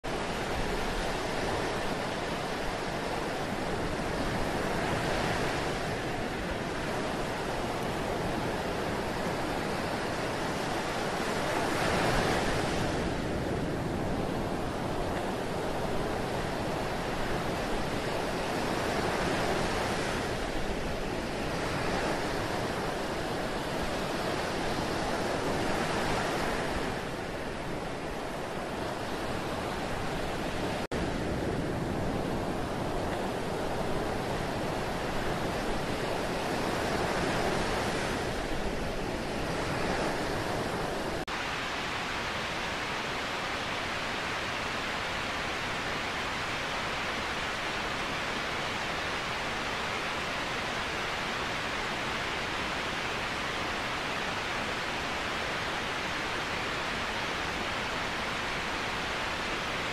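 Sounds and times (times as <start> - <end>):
rushing water hiss: 40.4 - 59.9.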